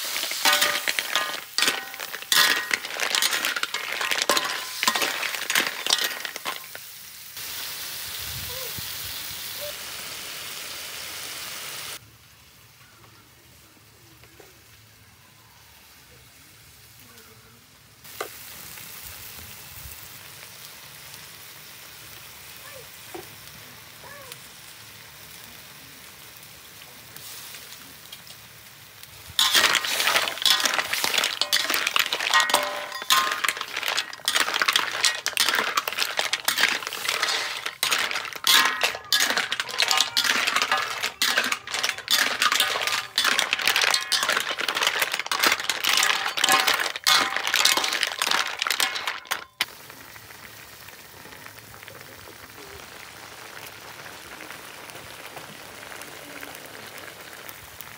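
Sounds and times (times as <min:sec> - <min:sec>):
clam shells clattering in a wok: 0:00.0 - 0:06.9, 0:29.3 - 0:49.7
faint pan sizzle: 0:00.0 - 0:17.2, 0:17.9 - 0:57.9.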